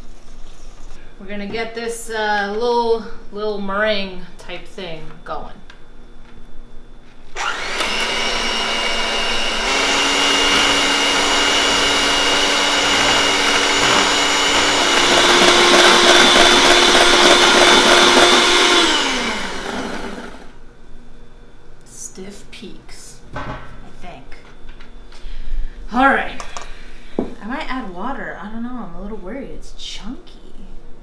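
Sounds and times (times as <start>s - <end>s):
electric hand mixer whining: 7.4s - 20.6s.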